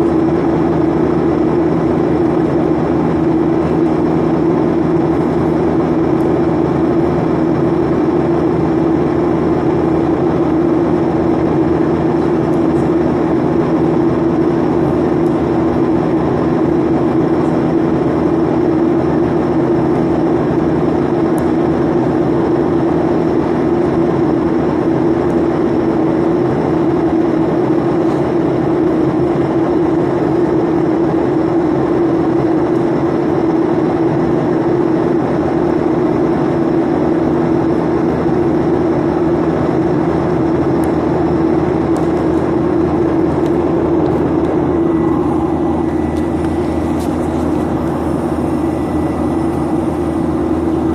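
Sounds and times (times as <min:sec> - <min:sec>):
jet engine drone: 0:00.0 - 0:50.9
rushing airflow: 0:38.4 - 0:50.9.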